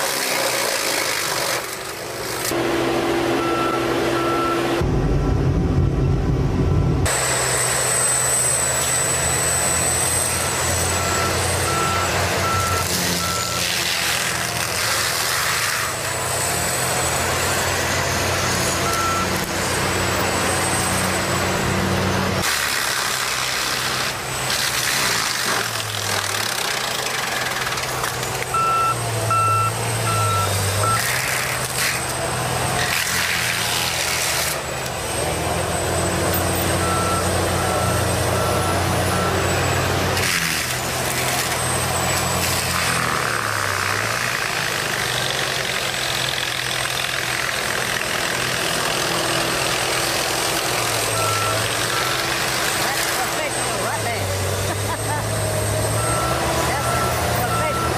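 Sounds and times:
diesel engine running hard: 0:00.0 - 0:57.9
reversing alarm beeping: 0:03.3 - 0:05.4, 0:06.7 - 0:13.7, 0:16.8 - 0:21.5, 0:28.5 - 0:32.1, 0:35.7 - 0:42.4, 0:51.0 - 0:54.2, 0:55.6 - 0:57.9.

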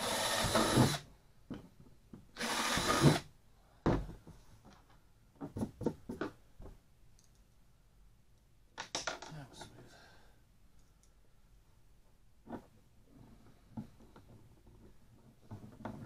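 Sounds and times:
cordless drill driving screws: 0:00.0 - 0:01.0, 0:02.4 - 0:03.2
small parts clicking: 0:07.2 - 0:07.5.

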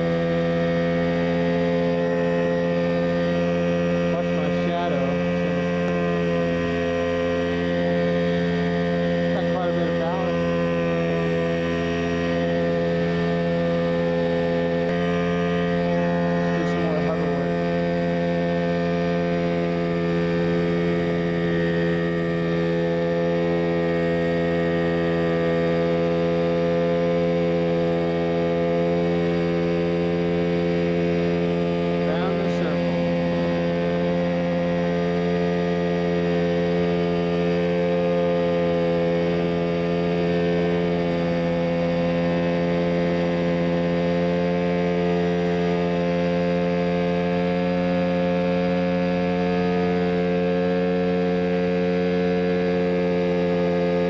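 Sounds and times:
helicopter engine and rotor hum: 0:00.0 - 0:54.0.

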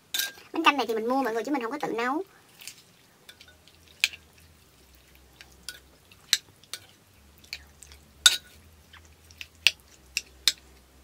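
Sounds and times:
metal spoon clinking on clay pot: 0:00.1 - 0:00.5, 0:03.3 - 0:04.3, 0:05.6 - 0:08.6, 0:09.6 - 0:10.8.

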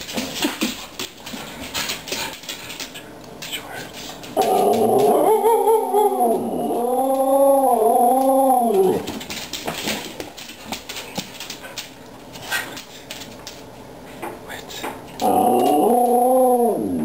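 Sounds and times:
dog yodelling: 0:04.4 - 0:09.1, 0:15.2 - 0:17.0
light clicks and taps: 0:09.1 - 0:15.8.

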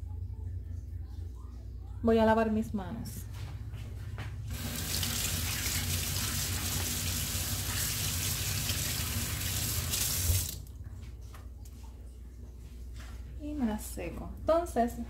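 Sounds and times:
faucet running: 0:04.5 - 0:10.7.

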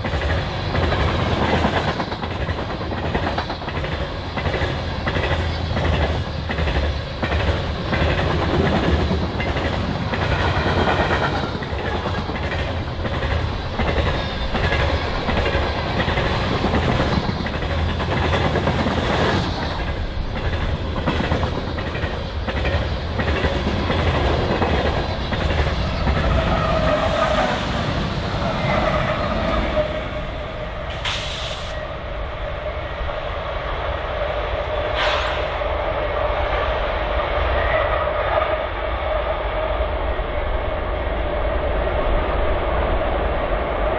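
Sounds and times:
freight train rolling past: 0:00.0 - 0:43.9
short sharp hisses: 0:30.9 - 0:31.8, 0:35.0 - 0:35.5.

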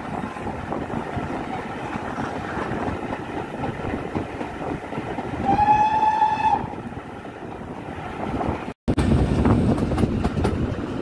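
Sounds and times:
moving train noise: 0:00.0 - 0:11.0
steam locomotive whistle: 0:05.4 - 0:06.7.

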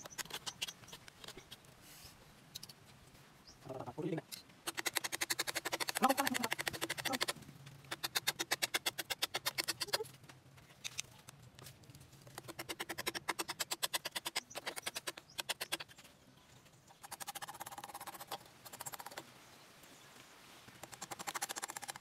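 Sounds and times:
hand saw sawing through wood: 0:04.7 - 0:07.3.

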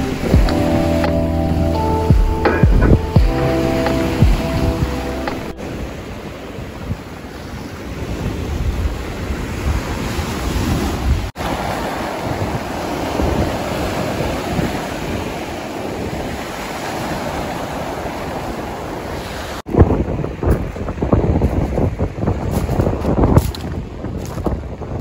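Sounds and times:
wind rumbling on microphone: 0:00.0 - 0:25.0
waves washing on pebble shore: 0:05.6 - 0:19.6.

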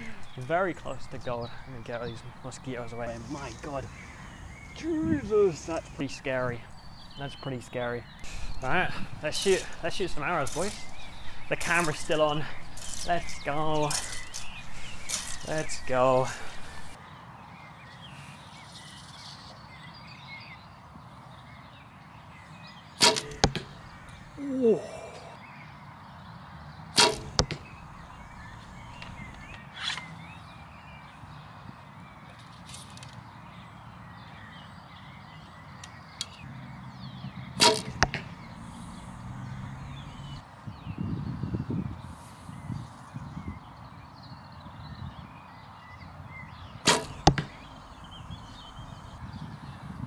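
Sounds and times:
faint birds chirping: 0:00.0 - 0:50.0
arrow striking target: 0:23.0 - 0:23.9, 0:27.0 - 0:28.2, 0:37.6 - 0:39.1, 0:46.8 - 0:47.7.

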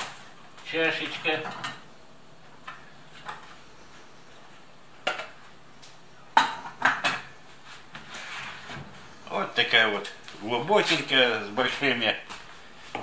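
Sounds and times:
dishes clattering in a cupboard: 0:01.3 - 0:01.9, 0:06.4 - 0:07.4.

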